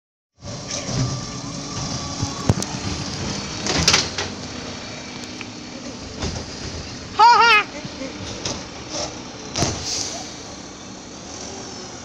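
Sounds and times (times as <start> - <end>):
garbage truck engine running: 0.4 - 12.0
short hiss: 9.8 - 10.6.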